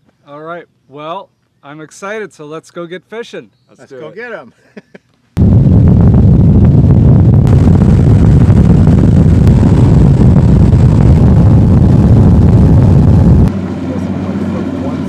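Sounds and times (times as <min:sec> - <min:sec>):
wind on microphone: 0:05.4 - 0:13.6
outboard motor roaring: 0:05.4 - 0:15.0.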